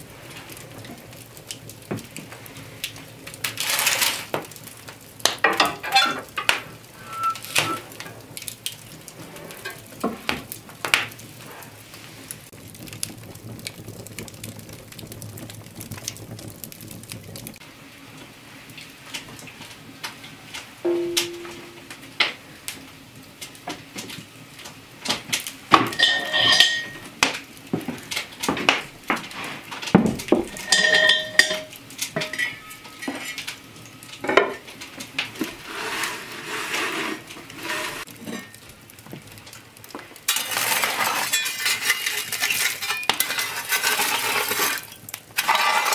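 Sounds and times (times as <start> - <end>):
metal cookware clanking: 5.5 - 7.8, 20.8 - 22.0, 25.8 - 27.1, 30.4 - 33.5, 40.3 - 45.9.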